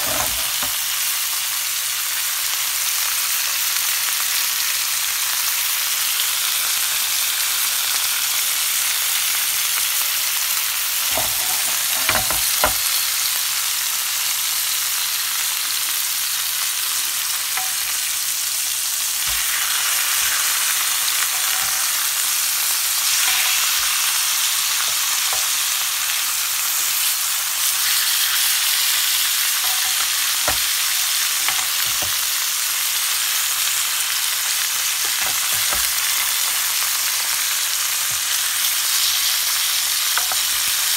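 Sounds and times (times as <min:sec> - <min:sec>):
pork chops sizzling in a pan: 0:00.0 - 0:40.9
tongs knocking against pan: 0:11.1 - 0:12.8.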